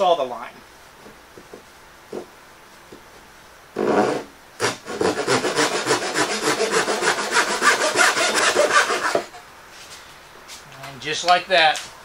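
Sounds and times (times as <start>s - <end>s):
handsaw cutting wood: 3.8s - 9.4s.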